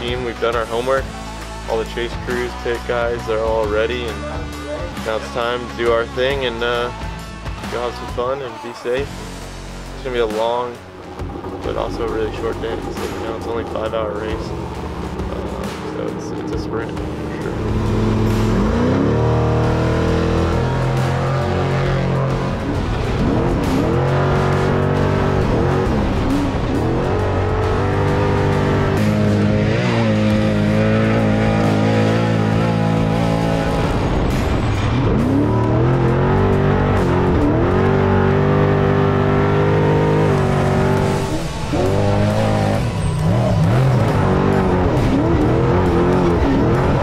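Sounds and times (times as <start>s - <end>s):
music: 0.0s - 47.0s
truck engine revving hard: 9.8s - 47.0s.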